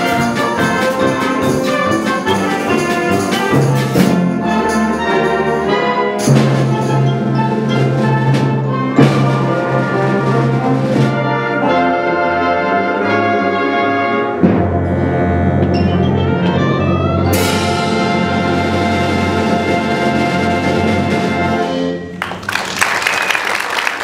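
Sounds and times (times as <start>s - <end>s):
sharp percussion hits: 0.0s - 9.7s, 14.4s - 21.4s
concert band playing: 0.0s - 24.0s.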